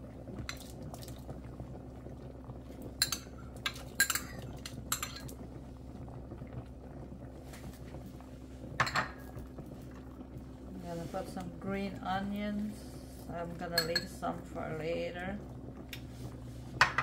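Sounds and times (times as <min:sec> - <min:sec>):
steady low hum: 0:00.0 - 0:17.0
utensils clinking against a pot: 0:03.0 - 0:05.4, 0:08.8 - 0:09.2, 0:13.8 - 0:14.1.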